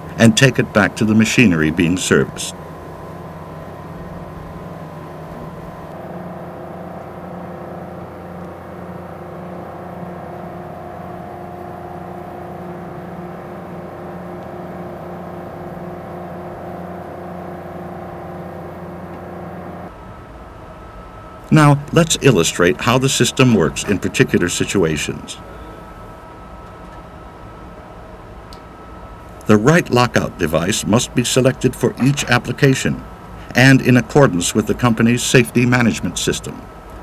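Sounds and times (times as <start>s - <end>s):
machinery hum with steady tones: 0.0s - 37.0s.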